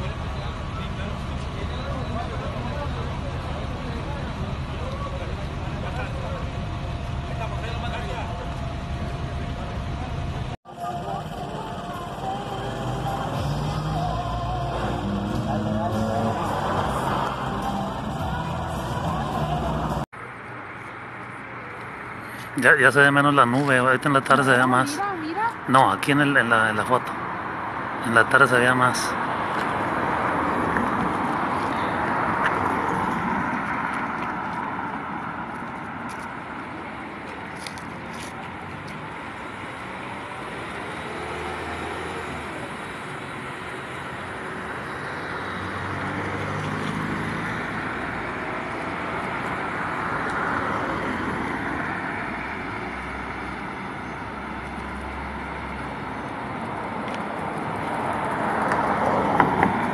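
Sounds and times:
low engine hum: 0.0s - 20.6s
cars passing: 0.0s - 59.9s.

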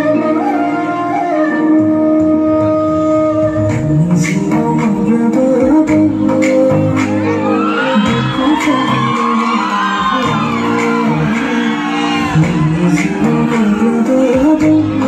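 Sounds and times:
loud song with singing: 0.0s - 15.0s
audience shouting and whooping: 6.9s - 15.0s.

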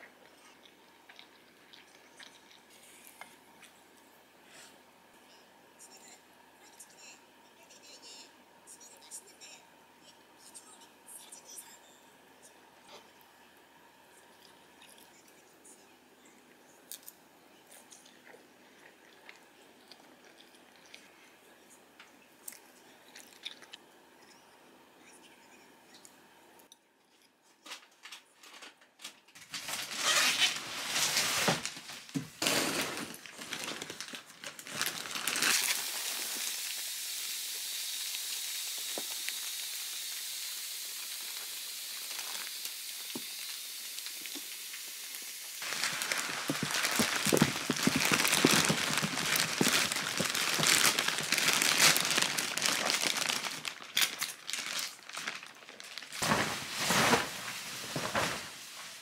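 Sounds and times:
plastic wrapping crinkling: 28.4s - 36.5s, 41.2s - 44.5s, 45.6s - 59.0s
steady air hiss: 35.6s - 52.6s.

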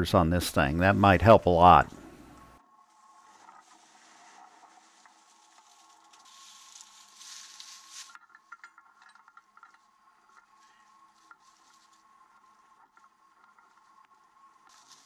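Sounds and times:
steady hiss: 0.0s - 8.2s, 9.9s - 15.0s.

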